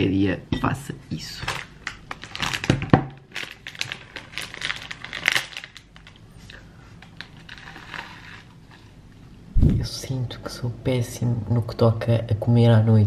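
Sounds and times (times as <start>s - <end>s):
rustling and crinkling handling: 1.4s - 8.9s.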